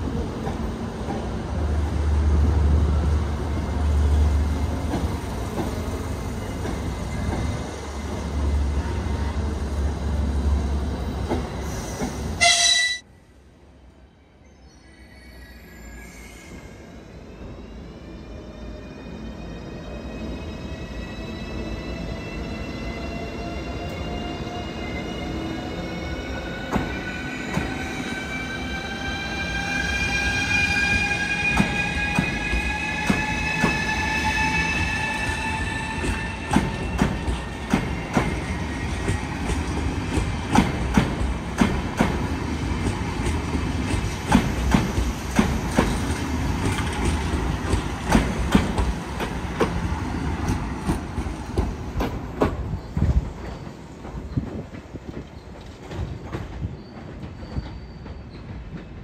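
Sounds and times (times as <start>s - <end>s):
train wheels clicking over rail joints: 35.9s - 59.0s.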